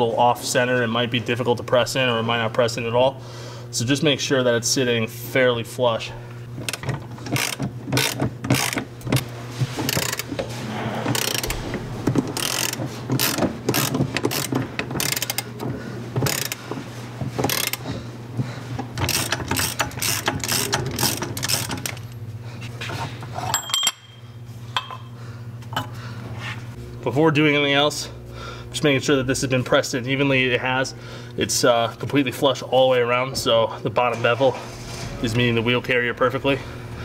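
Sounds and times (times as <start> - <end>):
socket ratchet clicking: 6.6 - 9.2, 9.9 - 10.3, 11.1 - 11.6, 12.4 - 15.5, 16.2 - 16.6, 17.5 - 17.8, 19.0 - 22.1.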